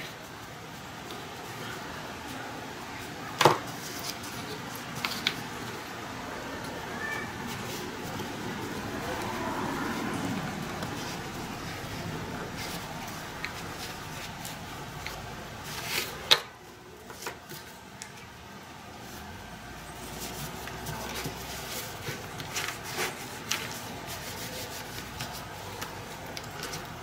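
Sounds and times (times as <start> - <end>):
strap rubbing and scraping: 6.6 - 16.3, 19.0 - 27.0.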